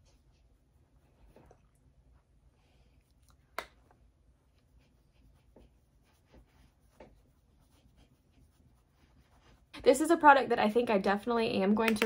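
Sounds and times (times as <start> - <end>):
brush sweeping over skin: 4.0 - 10.4.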